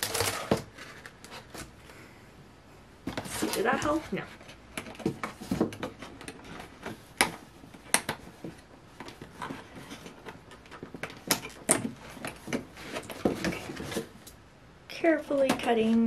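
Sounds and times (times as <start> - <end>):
cardboard box rustling and scraping: 3.1 - 7.1, 8.4 - 14.2.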